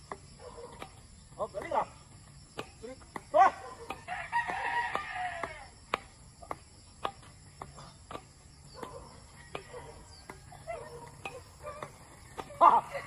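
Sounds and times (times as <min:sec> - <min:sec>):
high insect chorus: 0:00.0 - 0:13.0
rooster crowing: 0:04.0 - 0:05.8, 0:09.3 - 0:10.7.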